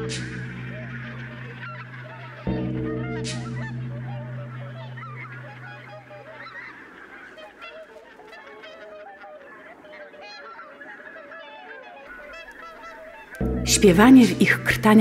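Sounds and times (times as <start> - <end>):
low droning tone: 0.0 - 6.1, 13.4 - 15.0
waterfowl flock calling: 0.0 - 15.0.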